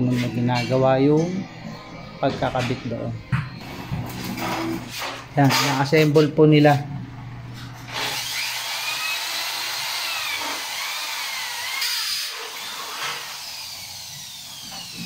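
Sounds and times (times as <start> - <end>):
electric drill boring into metal: 7.9 - 15.0.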